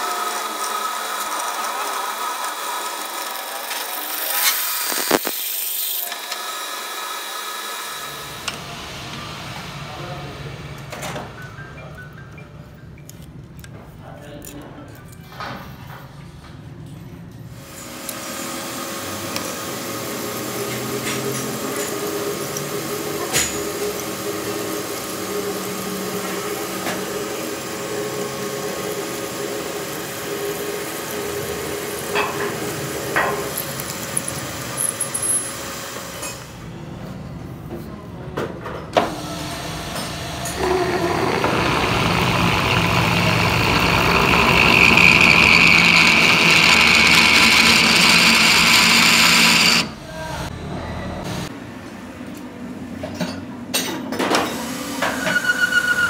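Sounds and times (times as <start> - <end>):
metal lathe drilling: 0.0 - 8.6, 17.6 - 36.3, 39.1 - 50.0
high-pitched squeal: 39.8 - 51.5.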